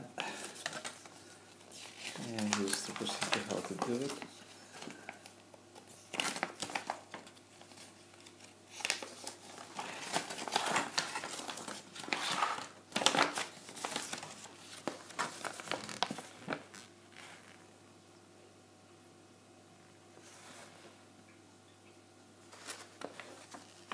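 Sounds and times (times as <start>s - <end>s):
paper crinkling and rustling: 0.3s - 17.6s, 22.5s - 23.9s.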